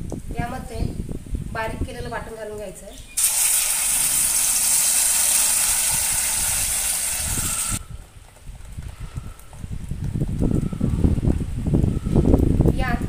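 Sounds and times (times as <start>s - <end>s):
paste sizzling in hot oil: 3.2s - 7.8s.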